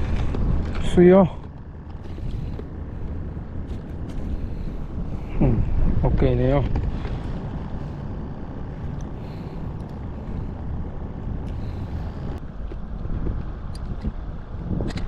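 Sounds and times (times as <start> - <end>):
wind rumbling on microphone: 0.0 - 15.0.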